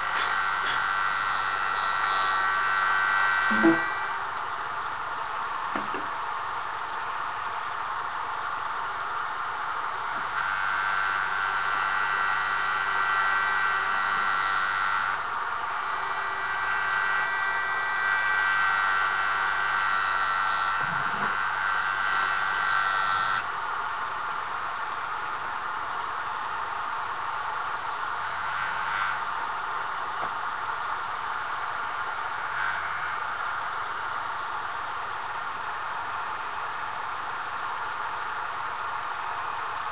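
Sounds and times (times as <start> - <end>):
steel grinding on abrasive disc: 0.0 - 4.1, 32.4 - 33.2
rotary sharpener running: 0.0 - 4.2, 9.8 - 23.5, 28.1 - 29.2, 32.0 - 33.5.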